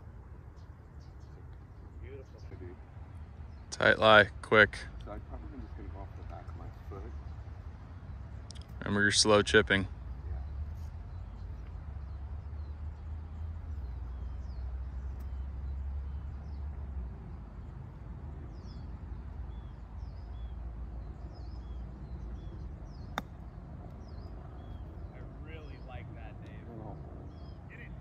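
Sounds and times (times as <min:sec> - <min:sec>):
small birds chirping: 0:00.0 - 0:28.0
golf club striking ball: 0:23.1 - 0:23.5.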